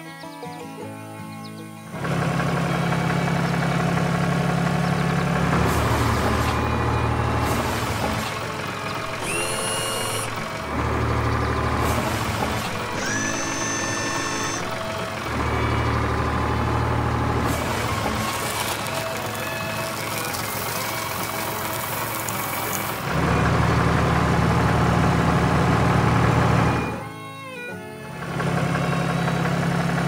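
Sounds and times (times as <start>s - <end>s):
background music: 0.0s - 4.0s, 24.5s - 29.8s
cartoon tractor engine drone: 0.8s - 30.0s
short high whistling tones: 12.8s - 14.8s.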